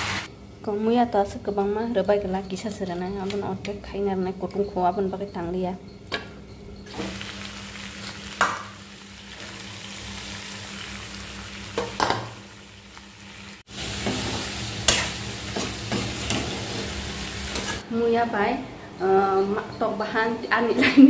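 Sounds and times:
food sizzling in a wok: 0.0 - 0.3, 6.9 - 17.8.

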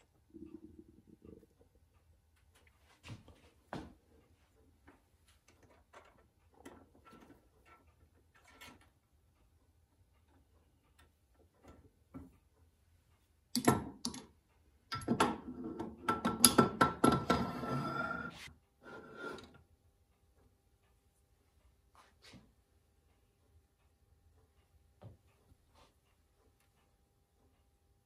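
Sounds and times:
metal scraping slide: 17.2 - 19.6.

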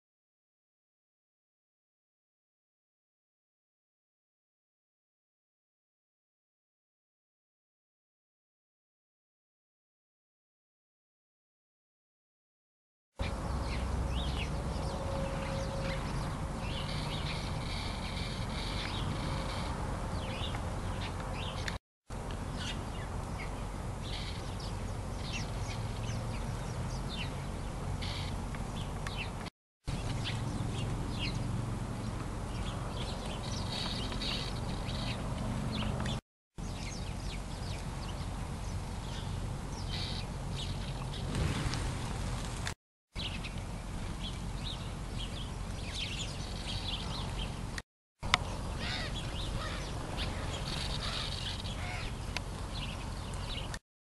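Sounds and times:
small birds chirping: 13.2 - 41.5, 43.2 - 53.8.

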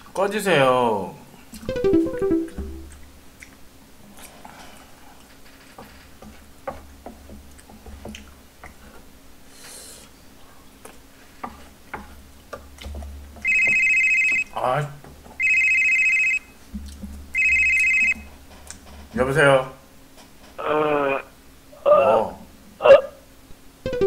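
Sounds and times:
chewing: 2.9 - 5.4, 7.4 - 9.1, 10.8 - 11.7.

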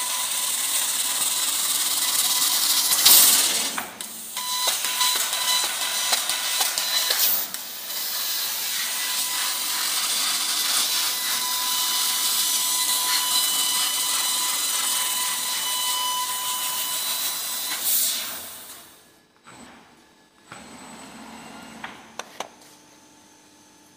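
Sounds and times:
laser cutter hissing: 0.0 - 18.8.

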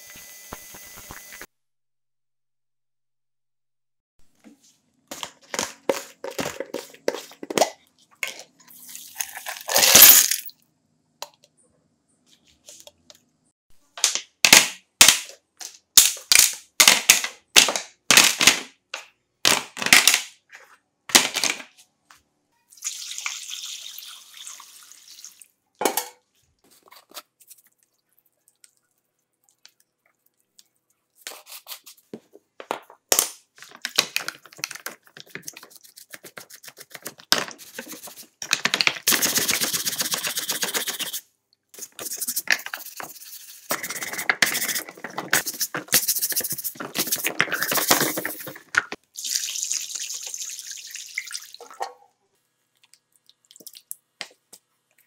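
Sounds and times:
water poured over plastic parts: 22.7 - 25.5, 49.1 - 51.7
stiff brush scrubbing: 41.8 - 48.5.

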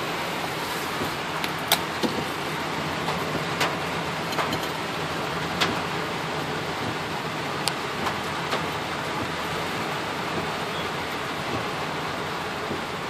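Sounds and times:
heavy rain and wet road hiss: 0.0 - 13.0.

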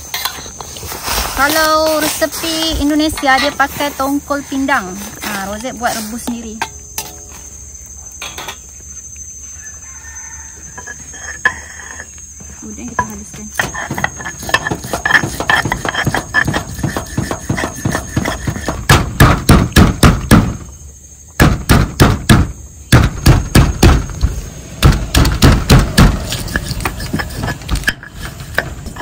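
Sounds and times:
stone pestle pounding on stone mortar: 13.6 - 20.6, 21.4 - 24.0.

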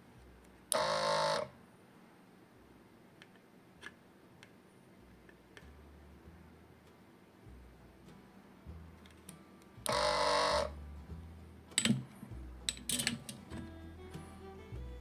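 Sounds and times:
small vacuum pump buzzing: 0.7 - 1.6, 9.9 - 10.7.

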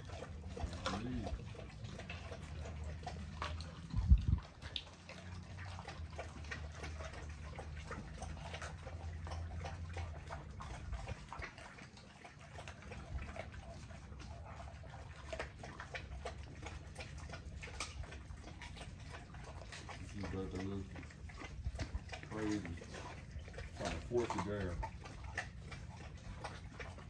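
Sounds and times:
dogs chewing wet meat: 0.0 - 27.0.

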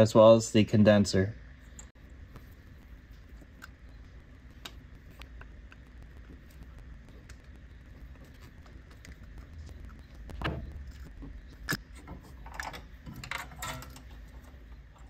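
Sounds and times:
screwdriver and small parts rattling: 10.8 - 15.0.

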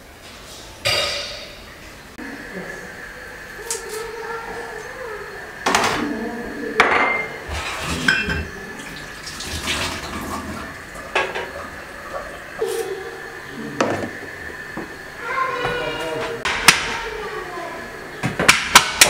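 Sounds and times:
metal bowls and utensils clattering: 6.8 - 11.8
tap running: 6.8 - 12.7, 13.8 - 17.1.

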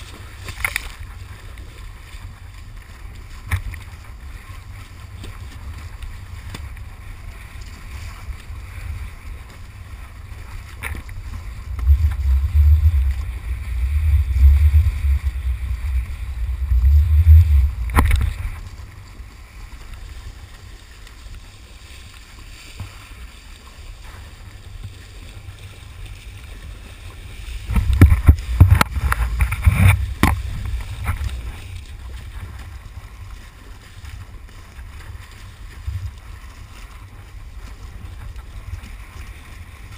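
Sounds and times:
wind buffeting microphone: 2.0 - 20.8, 24.2 - 33.5.

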